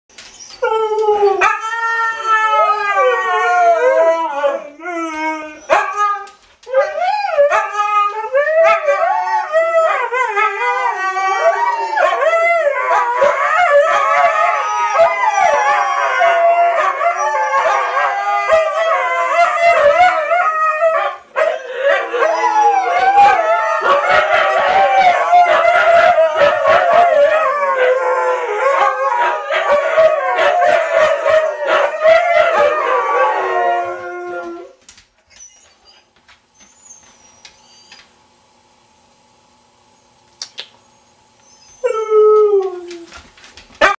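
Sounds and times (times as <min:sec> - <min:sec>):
huskies howling: 0:00.6 - 0:34.8.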